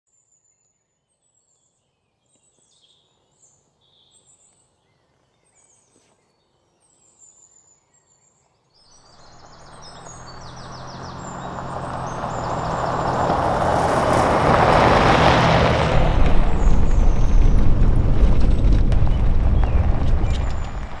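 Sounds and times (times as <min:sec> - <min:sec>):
truck driving on gravel: 0:09.1 - 0:21.0.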